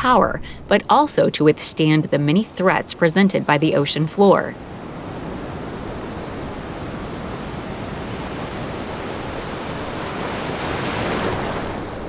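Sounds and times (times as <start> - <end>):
wind rushing: 0.0 - 2.0
sea rushing: 0.0 - 12.0.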